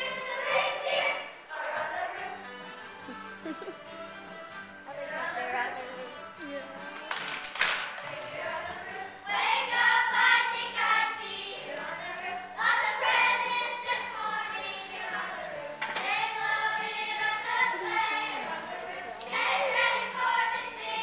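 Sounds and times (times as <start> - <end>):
children's choir singing: 0.0 - 2.9, 8.0 - 21.0.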